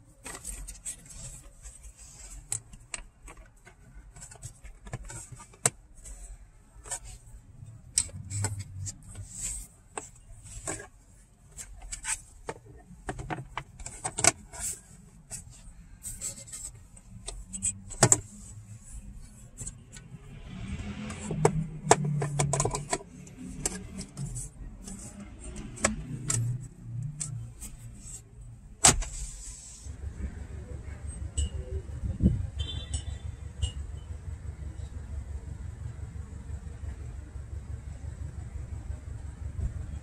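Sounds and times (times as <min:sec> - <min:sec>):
plastic scraping and rattling: 0:00.0 - 0:29.4.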